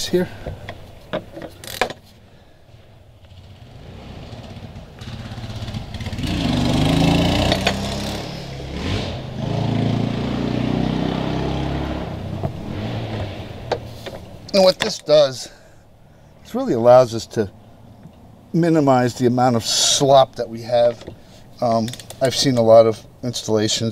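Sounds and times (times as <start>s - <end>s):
engine running: 3.1s - 18.5s.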